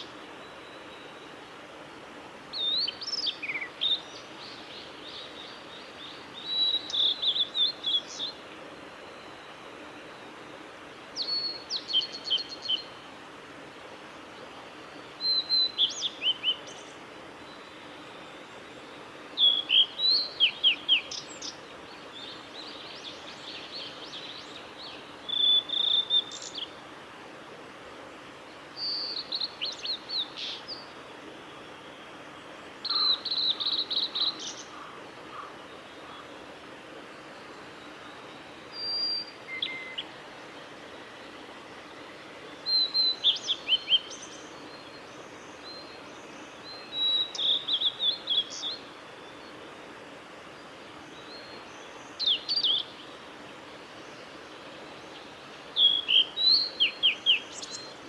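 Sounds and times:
flycatcher singing whistled notes: 37.8s - 40.2s, 42.6s - 44.9s.

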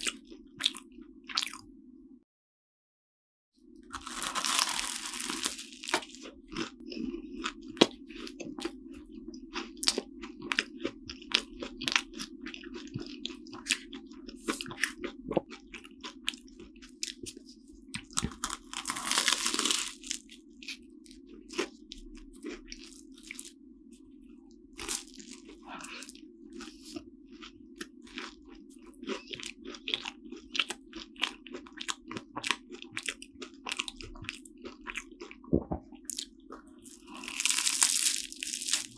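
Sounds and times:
crisp pastry crackling: 3.9s - 6.8s, 15.8s - 23.5s, 24.8s - 35.4s, 36.2s - 38.9s
loud crunching bite: 3.9s - 6.8s, 18.0s - 20.2s, 36.1s - 38.9s
chewing: 5.3s - 37.8s.

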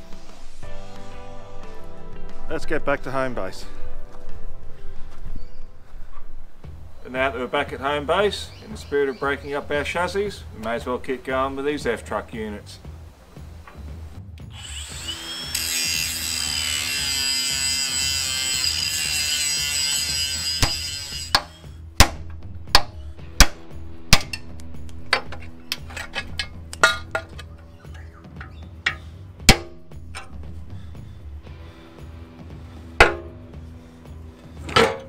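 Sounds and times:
background music: 0.0s - 35.0s
angle grinder grinding steel: 14.5s - 21.7s
hammer striking steel punch: 20.6s - 24.5s, 28.9s - 30.3s, 33.0s - 33.4s.

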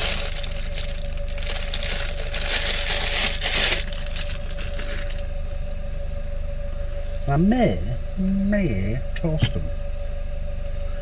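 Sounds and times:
plastic bag crinkling: 0.0s - 5.3s
steady hum: 0.0s - 11.0s.

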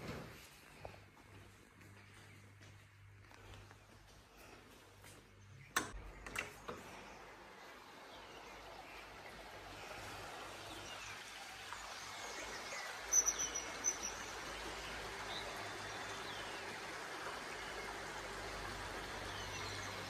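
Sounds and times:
birds chirping: 1.9s - 20.0s.

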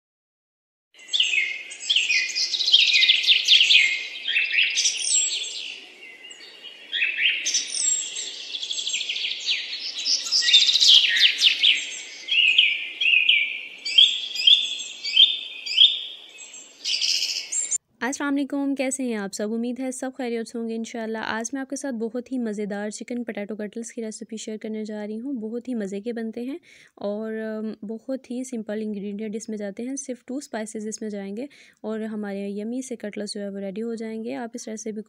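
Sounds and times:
songbirds singing: 1.0s - 17.8s.

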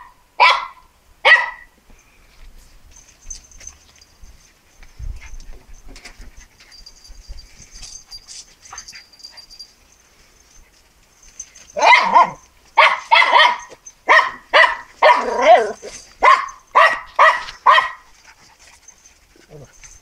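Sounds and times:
small dog barking: 0.0s - 1.7s, 11.7s - 18.1s.

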